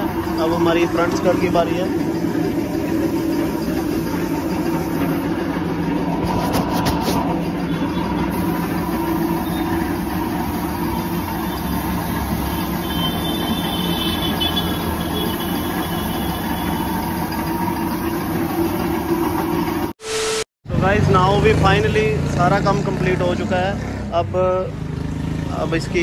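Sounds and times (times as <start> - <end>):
paint spray gun hissing: 0.0 - 5.7, 8.3 - 20.4
steady mechanical hum: 0.0 - 20.0.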